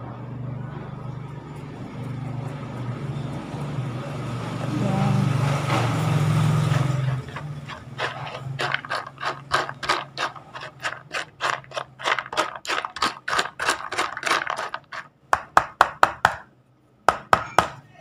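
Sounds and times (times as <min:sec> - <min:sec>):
spoon stirring kibble in plastic bowl: 0:06.4 - 0:15.8.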